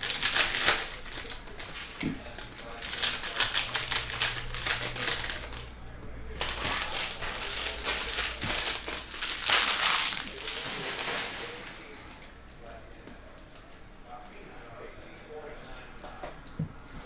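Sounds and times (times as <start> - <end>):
plastic wrappers crinkling: 0.0 - 12.0.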